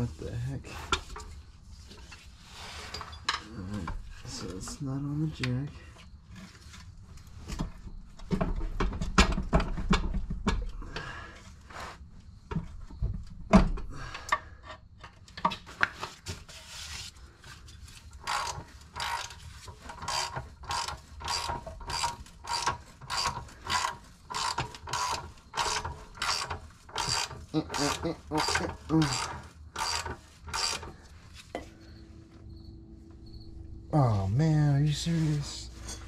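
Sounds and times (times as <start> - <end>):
metal knocks and clunks: 7.6 - 10.7
jack ratcheting: 18.2 - 31.0.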